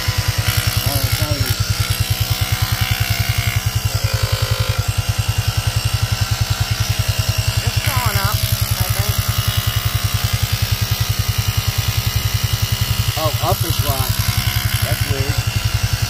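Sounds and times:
air compressor pulsing: 0:00.0 - 0:16.0.

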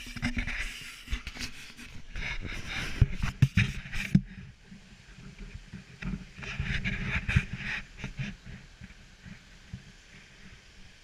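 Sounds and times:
handheld camera bumps and rustling: 0:00.0 - 0:04.4.

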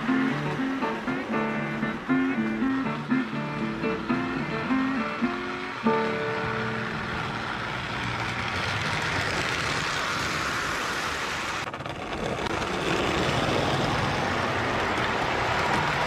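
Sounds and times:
toy trains rolling on metal track: 0:04.0 - 0:16.0.

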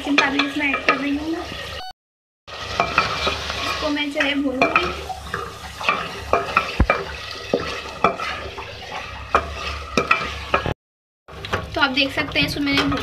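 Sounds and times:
oil sizzling: 0:00.0 - 0:01.8, 0:02.5 - 0:13.0
wooden spoon scraping metal pot: 0:02.5 - 0:10.8.

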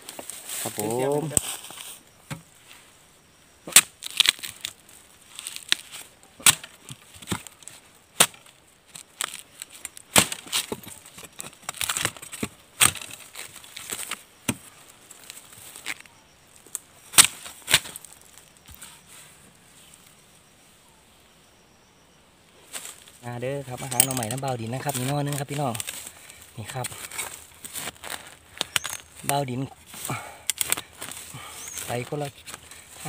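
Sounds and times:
machete chopping bamboo: 0:03.7 - 0:04.8, 0:05.4 - 0:07.6, 0:08.2 - 0:09.4, 0:10.0 - 0:11.0, 0:11.7 - 0:14.7, 0:17.1 - 0:18.0.

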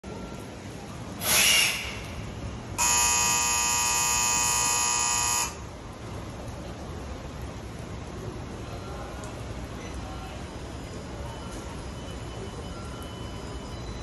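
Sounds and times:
electric departure buzzer: 0:02.8 - 0:05.6.

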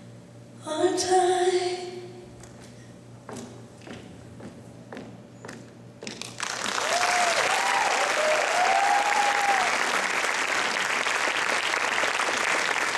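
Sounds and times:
audience applause: 0:06.3 - 0:12.9.

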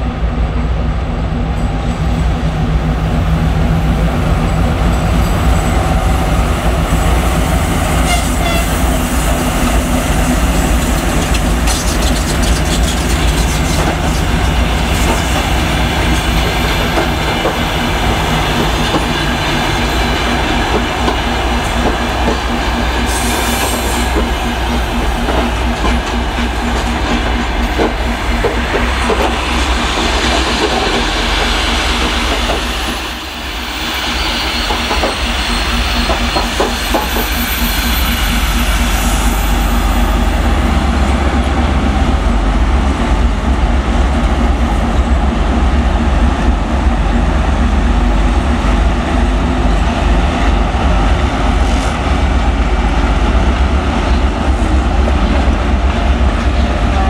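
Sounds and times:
diesel locomotive engine drone: 0:00.0 - 0:57.0
train wheels clattering over rail joints: 0:10.2 - 0:33.0, 0:34.6 - 0:37.5.

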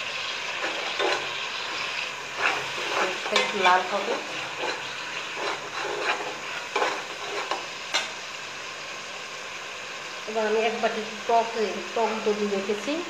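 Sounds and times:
food sizzling: 0:00.0 - 0:13.0
metal spoon scraping a pot: 0:00.5 - 0:08.1.

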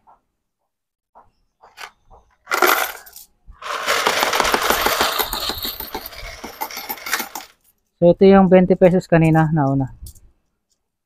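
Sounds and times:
coin clattering through slot: 0:02.5 - 0:07.6
coins clinking into tray: 0:02.5 - 0:07.7.

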